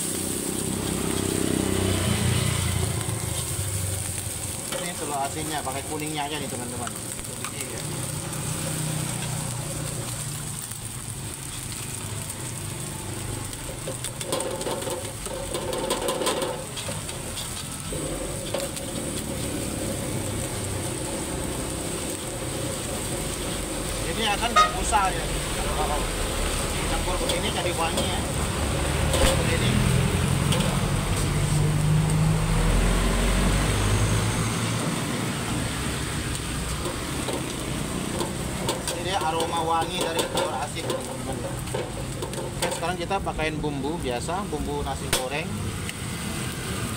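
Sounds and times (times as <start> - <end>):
gas burner rumble: 0.0 - 46.9
rice sizzling in a wok: 0.0 - 46.9
metal ladle scraping wok: 13.6 - 31.7, 36.6 - 43.0.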